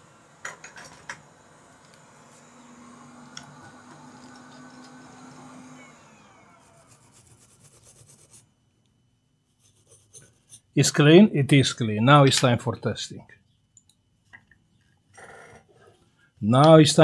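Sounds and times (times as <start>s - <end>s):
faint steady hum: 0.0s - 17.0s
scrubbing on circuit board: 6.7s - 8.5s.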